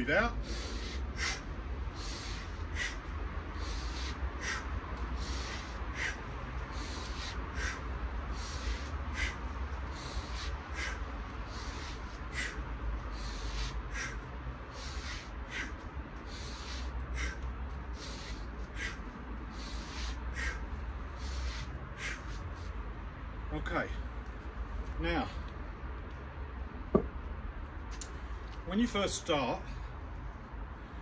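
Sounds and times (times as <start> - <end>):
steady low rumble: 0.0 - 31.0
forceful breaths exhaled: 0.3 - 22.8.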